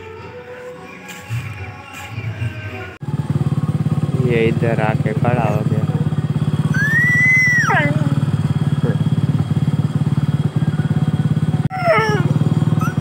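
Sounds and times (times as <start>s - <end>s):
motorcycle engine idling: 1.3s - 13.0s
dog whining: 6.7s - 9.0s, 11.7s - 13.0s.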